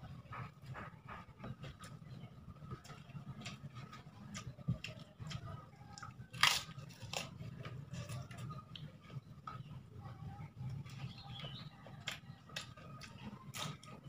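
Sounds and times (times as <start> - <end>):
crunchy chewing: 2.7 - 9.8, 10.7 - 14.0.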